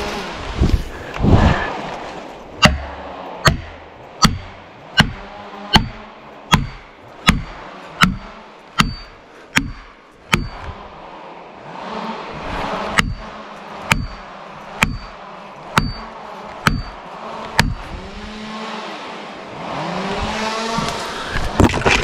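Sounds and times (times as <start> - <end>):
rush of noise: 0.0 - 4.8, 10.5 - 14.6
axe hammering wedge: 2.6 - 10.8, 12.9 - 17.9.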